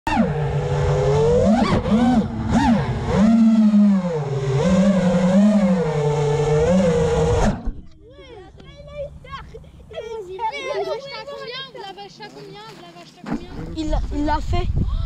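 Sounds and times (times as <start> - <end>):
drone motors buzzing whine: 0.1 - 9.2
wind rumble on microphone: 13.4 - 15.0.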